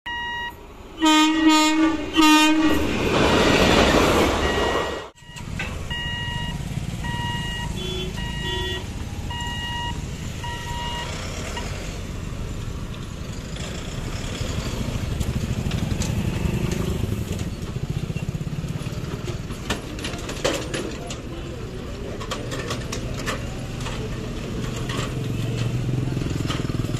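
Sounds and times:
level crossing warning beeps: 0.1 - 0.6, 3.8 - 11.8
train rushing past: 0.1 - 20.2
vehicles rumbling over crossing: 0.1 - 26.9
train horn blasts: 1.0 - 2.9, 7.6 - 8.9.

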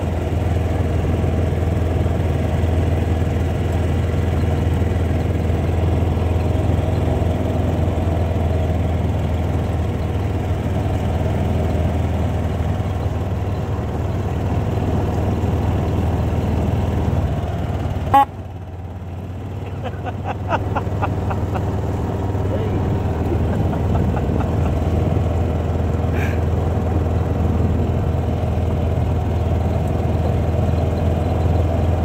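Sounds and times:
tyres on gravel road: 0.0 - 32.0
vehicle engine running low: 0.0 - 32.0.

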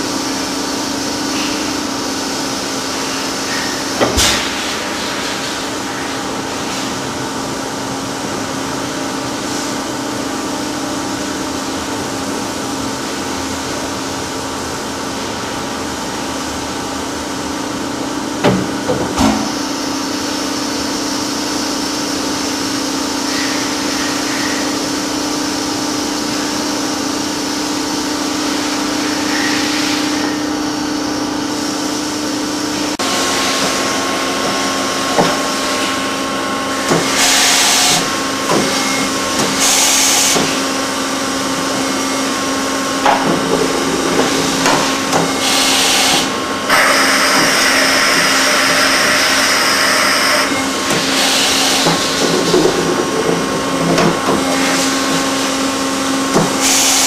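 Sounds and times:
machine hum: 30.0 - 57.0.

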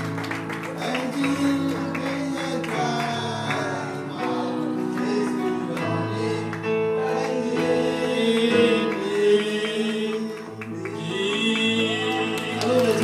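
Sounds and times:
guitar accompaniment: 0.0 - 13.0
person singing into microphone: 0.7 - 13.0.

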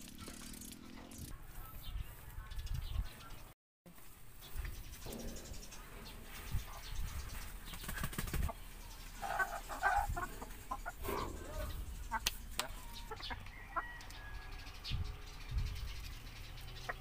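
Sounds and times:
knocks against metal cage: 5.0 - 7.0
wings flapping: 7.5 - 8.6
hens calling: 8.5 - 14.3.

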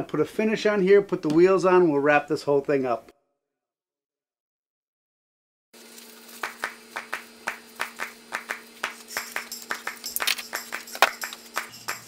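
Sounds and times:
even beat of claps: 6.4 - 12.0.

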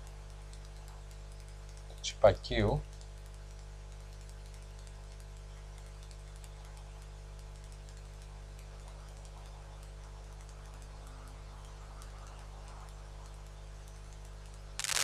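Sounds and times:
faint ticks: 0.0 - 15.0
hot-air gun humming and hissing: 14.8 - 15.0.

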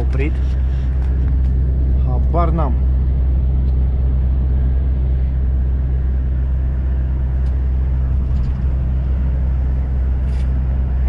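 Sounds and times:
diesel engine drone in cab: 0.0 - 11.0
road noise: 0.0 - 11.0.

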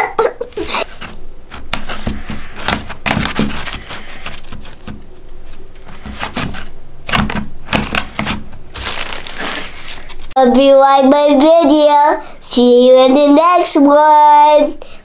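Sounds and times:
tissue paper crinkling: 0.5 - 6.7, 7.8 - 10.4
paper envelope rustling: 0.5 - 10.4.

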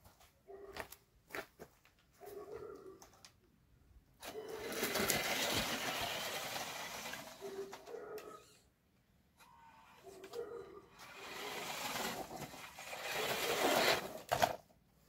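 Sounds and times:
toy car motor whirring: 4.2 - 8.7, 9.4 - 14.6.

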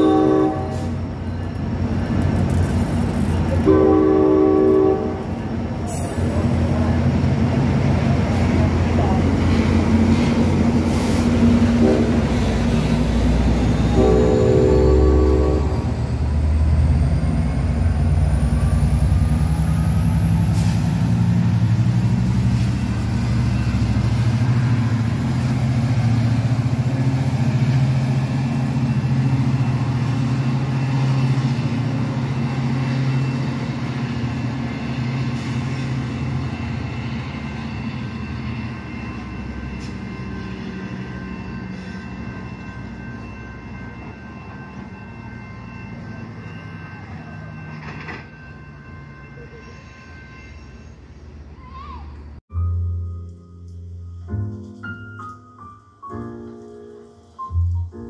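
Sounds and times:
train horn blast: 0.0 - 1.0, 3.6 - 5.4, 11.6 - 12.5, 13.9 - 16.0
diesel train engine rumbling: 0.0 - 54.6.

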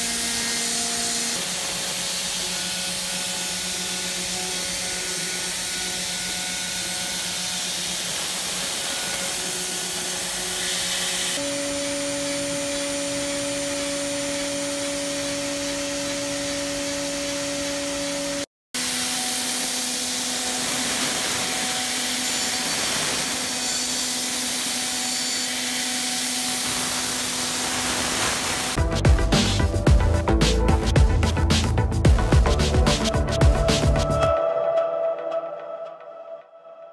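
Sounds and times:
airy cutting fluid hiss: 27.6 - 28.8.

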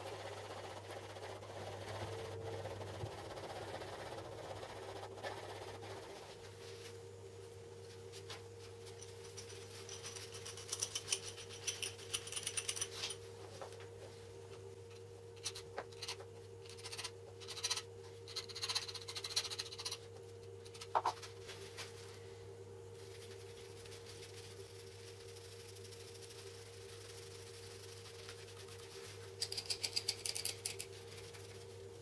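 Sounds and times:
steady low hum: 0.0 - 32.0
screwdriver scraping and tapping: 29.4 - 30.9.

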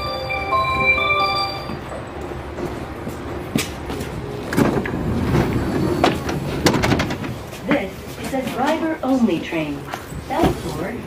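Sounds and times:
electronic door chime tune: 0.0 - 1.8
footsteps stepping aboard: 1.7 - 9.2.

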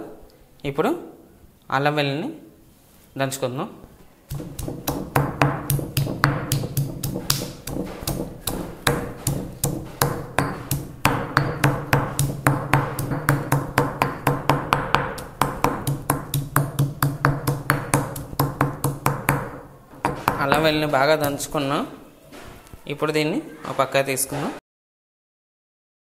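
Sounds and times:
pestle pounding in stone mortar: 4.3 - 21.6.

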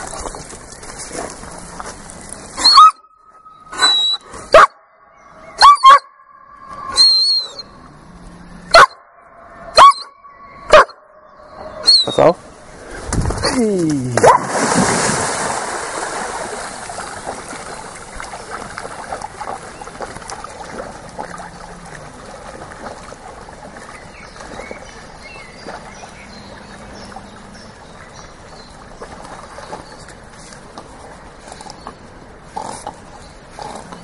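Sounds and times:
water sloshing and trickling: 0.0 - 2.6, 12.4 - 34.0
dog splashing into water: 13.0 - 26.0.

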